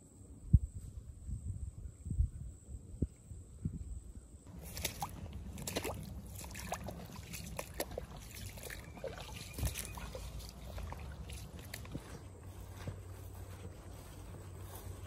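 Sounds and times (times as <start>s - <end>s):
boots splashing through water: 4.5s - 15.0s.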